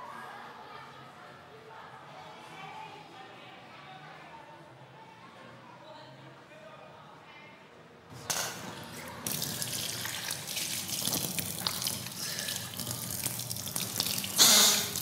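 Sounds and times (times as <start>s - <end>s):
hands splashing water: 8.6s - 15.0s
tap running into metal sink: 12.8s - 15.0s.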